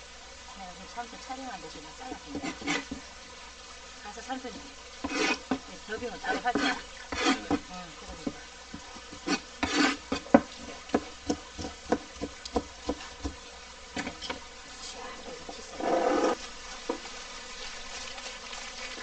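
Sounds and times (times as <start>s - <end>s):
knife scrape: 2.3s - 3.0s, 5.0s - 5.6s, 6.2s - 7.6s, 9.1s - 10.8s, 14.0s - 14.4s, 15.7s - 16.4s
knife chopping on plastic board: 8.2s - 13.4s.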